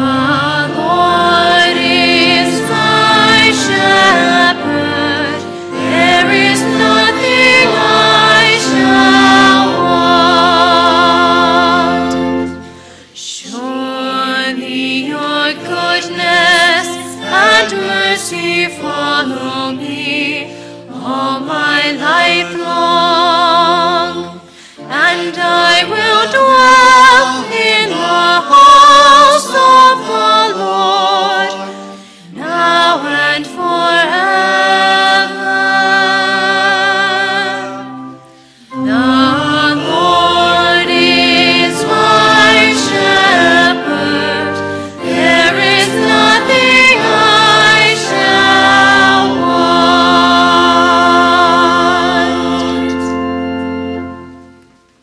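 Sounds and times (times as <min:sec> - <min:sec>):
sustained instrumental accompaniment: 0:00.0 - 0:55.0
woman singing with vibrato: 0:13.0 - 0:37.9.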